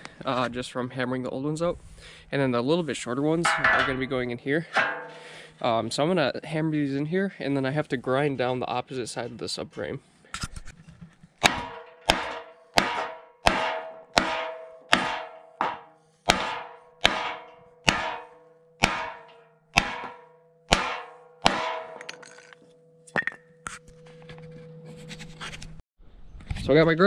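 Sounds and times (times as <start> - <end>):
hammer striking metal with ringing: 3.4 - 5.4, 11.4 - 24.4.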